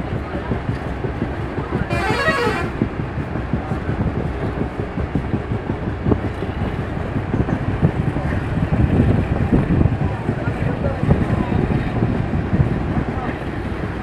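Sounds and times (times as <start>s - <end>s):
train coach rumbling on track: 0.0s - 14.0s.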